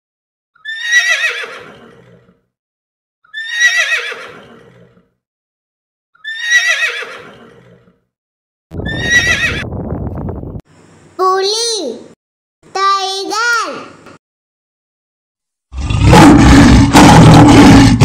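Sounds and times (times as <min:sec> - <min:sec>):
horse whinnying: 0:00.6 - 0:02.4, 0:03.3 - 0:05.1, 0:06.2 - 0:08.0, 0:08.7 - 0:09.6
low rough rumble: 0:08.7 - 0:10.6.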